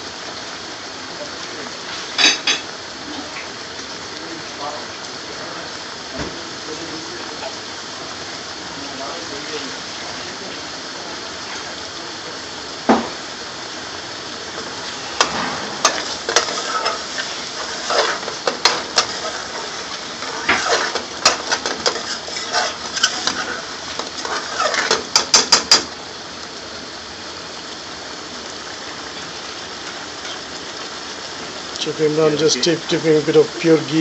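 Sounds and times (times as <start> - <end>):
sauce bubbling in a pan: 0.0 - 34.0
metal spoon scraping a pan: 14.8 - 25.9
spoon tapping a pan: 24.9 - 25.9.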